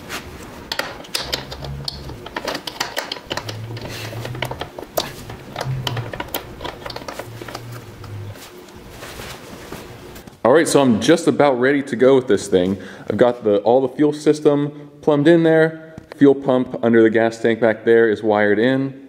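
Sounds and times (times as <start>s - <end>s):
low hum: 0.5s - 10.3s
hand tools tapping on metal: 0.7s - 8.4s.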